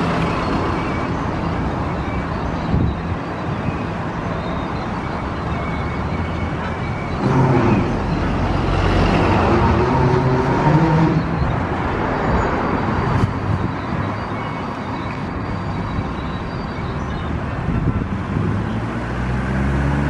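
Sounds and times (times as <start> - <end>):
engine rumble: 5.8 - 13.7.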